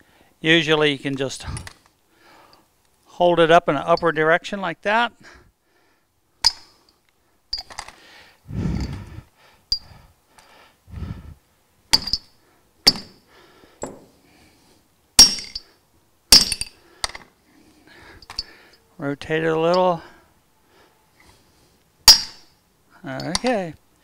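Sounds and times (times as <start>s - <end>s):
metallic clinks and knocks: 6.4s - 8.0s, 9.7s - 10.0s, 11.9s - 13.2s, 15.2s - 15.7s, 16.3s - 17.3s, 18.2s - 18.6s, 22.1s - 22.5s, 23.2s - 23.6s.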